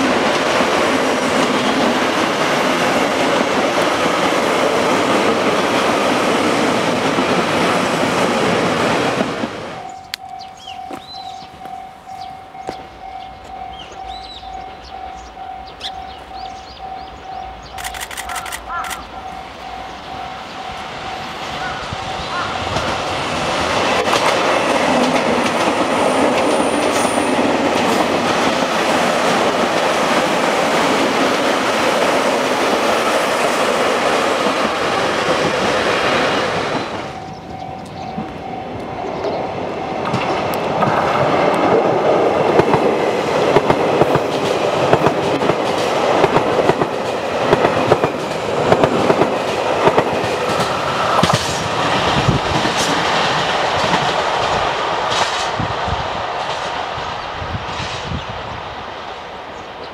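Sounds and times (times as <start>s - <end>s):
electric trains passing: 0.0s - 59.9s
wheels clacking over rail joints: 21.6s - 38.5s, 40.0s - 55.6s.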